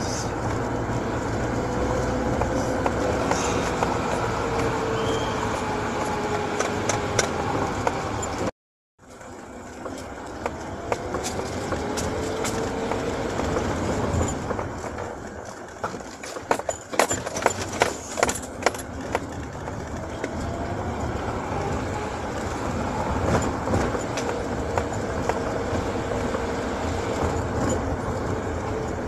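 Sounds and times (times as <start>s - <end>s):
car engine and road noise: 0.0s - 29.0s
sharp clicks and knocks: 2.3s - 4.8s, 5.9s - 8.5s, 9.7s - 21.1s, 23.2s - 26.5s.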